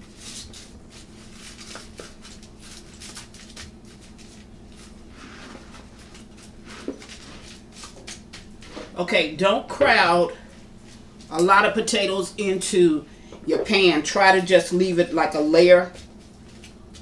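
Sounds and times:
foil crinkling: 0.0s - 8.6s.

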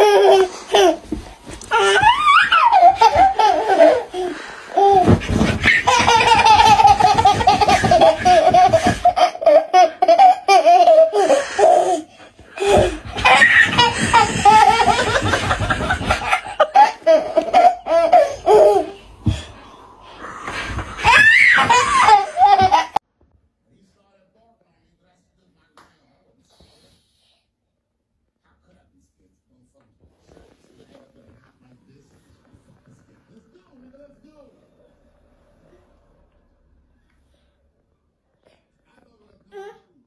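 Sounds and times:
toddler belly laughing: 0.0s - 19.6s, 20.4s - 23.0s.

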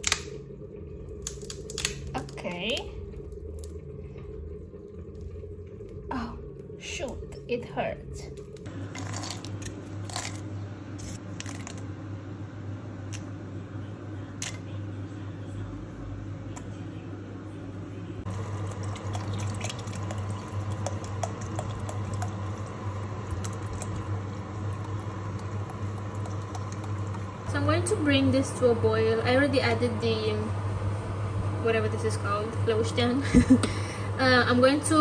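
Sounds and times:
steady low hum: 0.0s - 35.0s
soup bubbling in pot: 18.3s - 27.4s.

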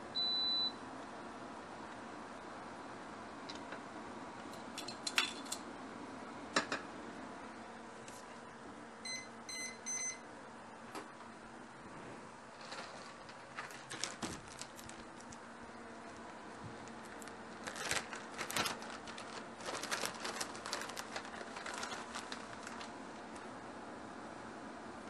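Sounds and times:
steady faint hum: 0.0s - 25.0s
crinkling: 12.5s - 23.5s.

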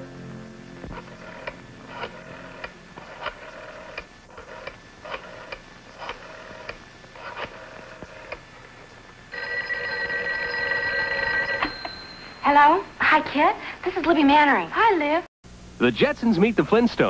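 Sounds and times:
telephone bell ringing: 9.3s - 12.8s.

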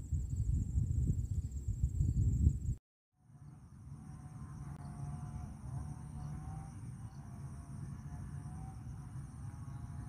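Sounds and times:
wind on microphone: 0.0s - 2.8s
insects droning: 0.0s - 10.0s.

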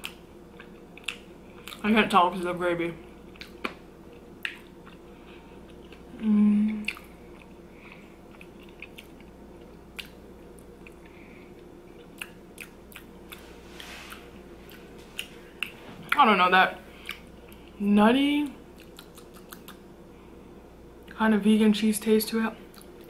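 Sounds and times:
wet chewing mouth sounds: 0.0s - 1.8s, 3.3s - 6.1s, 6.8s - 16.2s, 16.9s - 17.8s, 18.7s - 19.8s
closed-mouth hum: 0.0s - 23.0s.

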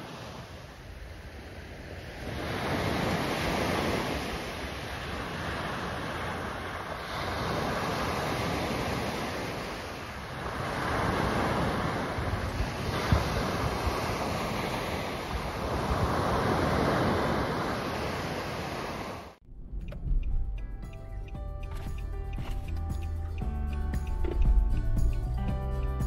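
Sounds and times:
small waves breaking on beach: 0.0s - 19.4s
wind on microphone: 0.0s - 20.7s.

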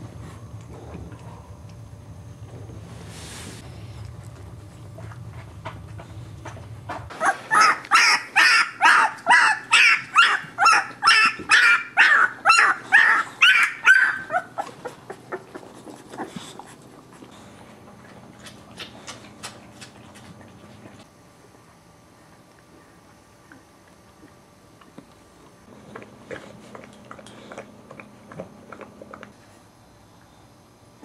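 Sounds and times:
puppy yelping: 7.1s - 16.4s.

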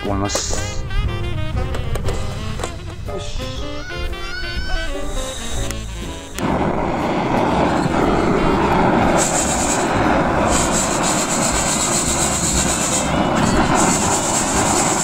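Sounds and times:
gas stove burner hissing: 4.8s - 15.0s
coffee beans rattling in roaster: 9.2s - 15.0s.

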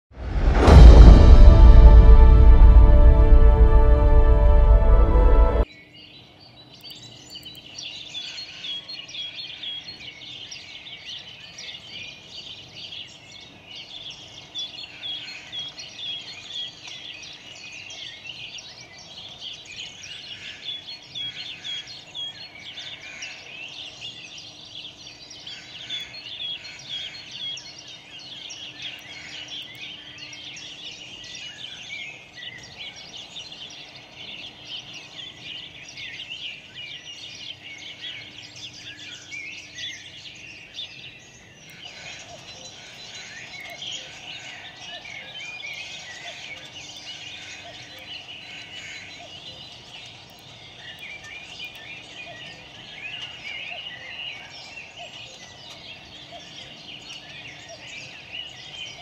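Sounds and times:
birds chirping and singing: 5.7s - 59.0s.

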